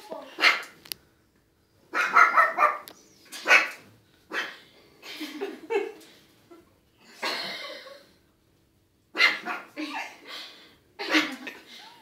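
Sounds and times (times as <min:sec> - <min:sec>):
puppy barking: 0:00.4 - 0:00.8, 0:01.9 - 0:04.6, 0:09.2 - 0:09.8.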